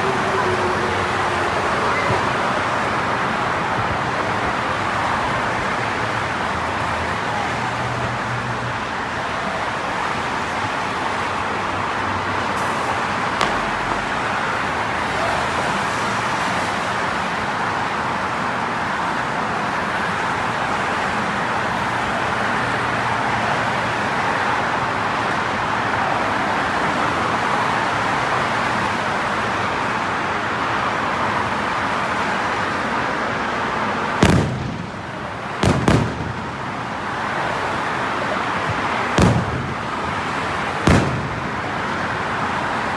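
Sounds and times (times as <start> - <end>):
firework bangs: 12.6 - 15.1, 34.1 - 37.8, 38.6 - 42.4.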